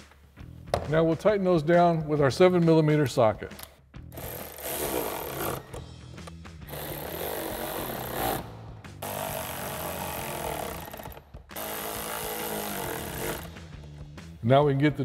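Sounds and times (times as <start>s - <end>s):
cordless electric ratchet running: 4.1s - 5.8s, 6.7s - 8.4s, 9.0s - 13.6s.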